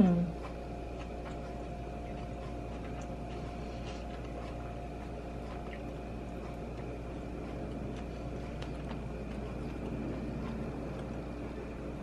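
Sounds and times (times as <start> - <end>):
faint wet chewing: 0.0 - 12.0
steady hum: 0.0 - 12.0.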